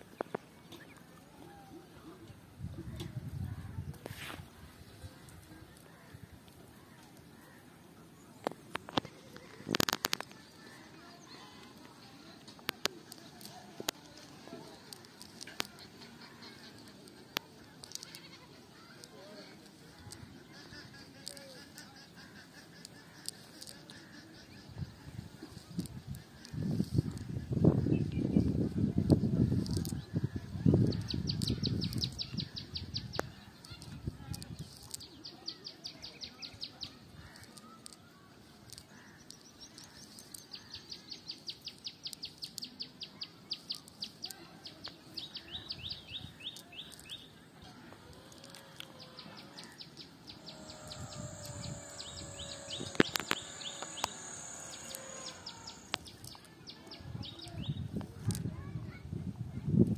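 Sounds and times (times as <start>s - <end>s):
small bird chirping: 29.1s - 57.9s.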